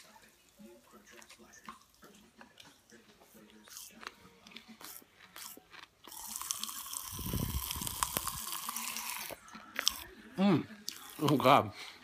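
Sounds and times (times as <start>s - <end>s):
popping candy crackling: 5.3s - 10.0s.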